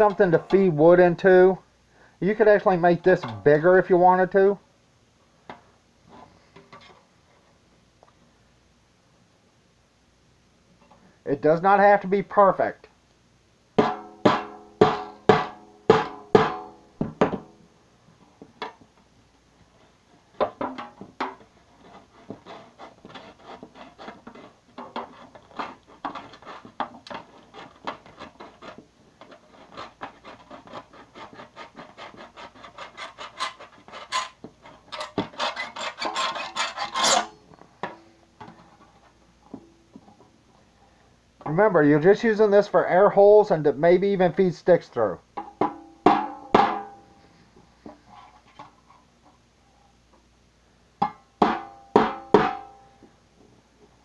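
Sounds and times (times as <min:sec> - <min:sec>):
knife sawing through tin: 0:21.8 - 0:37.3
knife striking sheet metal: 0:35.0 - 0:37.4, 0:45.6 - 0:47.0.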